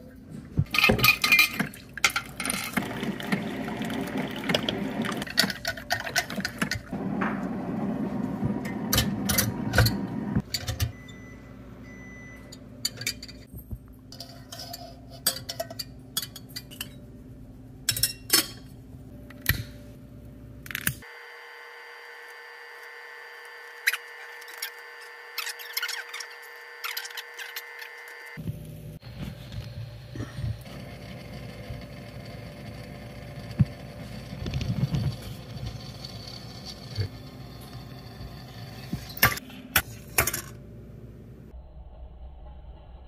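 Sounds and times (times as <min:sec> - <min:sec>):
water pouring: 0:01.2 - 0:06.6.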